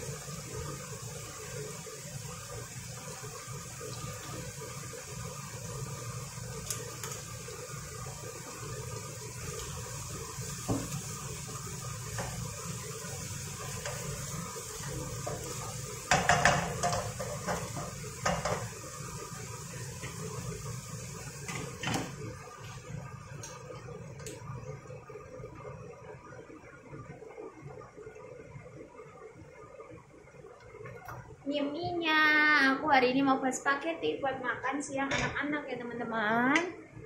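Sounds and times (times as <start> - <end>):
onion and garlic sizzling in pan: 0.0 - 33.3
spatula knocking and scraping pan: 10.6 - 11.1, 13.6 - 18.8.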